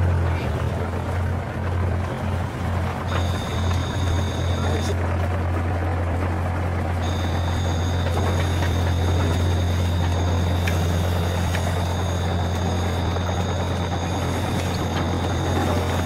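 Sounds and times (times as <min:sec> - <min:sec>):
toy electric motors humming: 0:03.1 - 0:05.0, 0:07.0 - 0:16.0.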